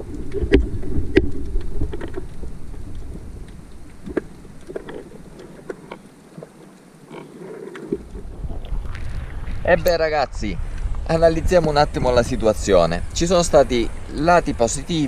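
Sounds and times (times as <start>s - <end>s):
sharp underwater clicks: 0.0s - 10.0s
muffled underwater rush: 0.0s - 15.0s.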